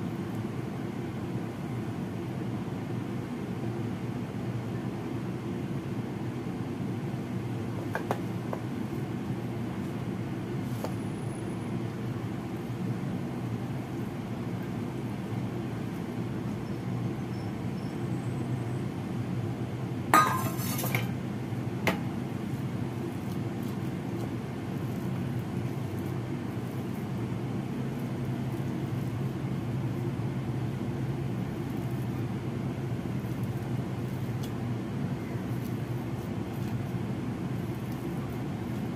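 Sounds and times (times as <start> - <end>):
steady low hum: 0.0 - 38.9
spatula scraping steel bowl: 20.2 - 21.1.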